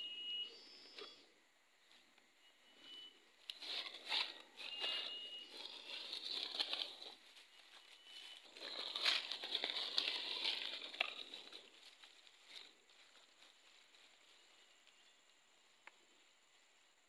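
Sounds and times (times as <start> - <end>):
footsteps crunching dry leaves: 3.6 - 14.6.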